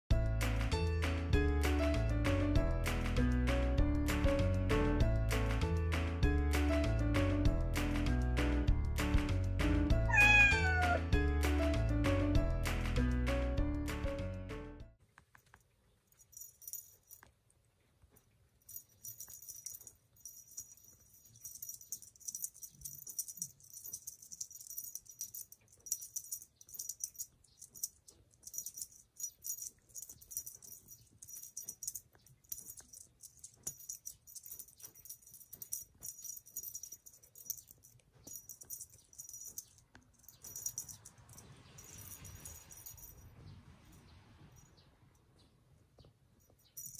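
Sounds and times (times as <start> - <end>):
toy jingling and rattling: 10.1 - 11.0, 16.1 - 17.3, 18.6 - 43.5, 46.4 - 46.9.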